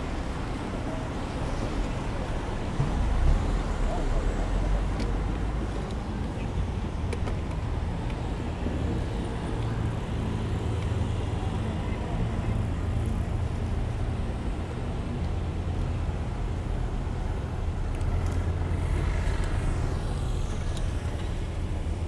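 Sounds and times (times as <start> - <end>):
cars passing: 0.0 - 22.0.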